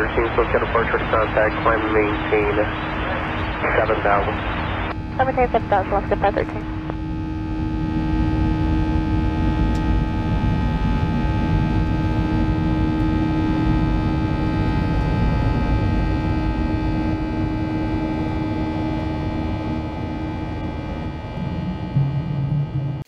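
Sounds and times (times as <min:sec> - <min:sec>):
airplane cabin airflow rush: 0:00.0 - 0:07.0
jet engines whining: 0:00.0 - 0:23.0.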